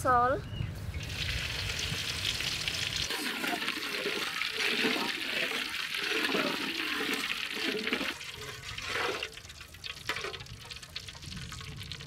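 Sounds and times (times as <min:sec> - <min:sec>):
metal spatula scraping a wok: 0:03.1 - 0:09.3
oil swishing in a wok: 0:03.1 - 0:10.9.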